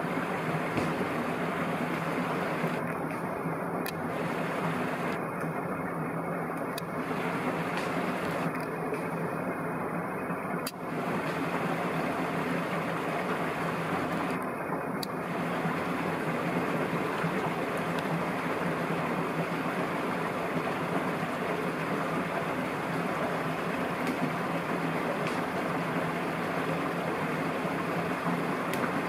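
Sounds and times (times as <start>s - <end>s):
steady rushing ambient noise: 0.0s - 29.0s.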